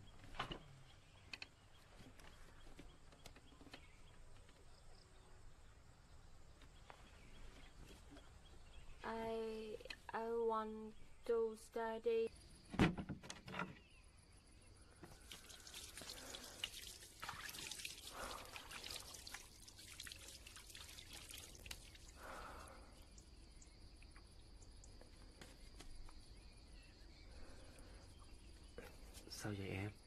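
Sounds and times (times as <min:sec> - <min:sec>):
shower water running: 0:15.2 - 0:22.6.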